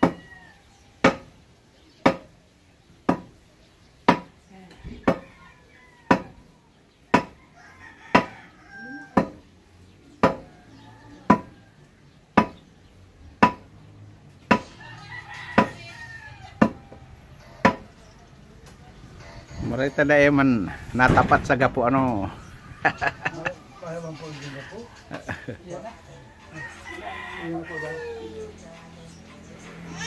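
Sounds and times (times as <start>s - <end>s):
rooster crowing: 0.0s - 0.9s, 4.8s - 6.6s, 7.3s - 9.4s, 10.3s - 11.8s, 14.6s - 17.9s, 26.0s - 28.5s.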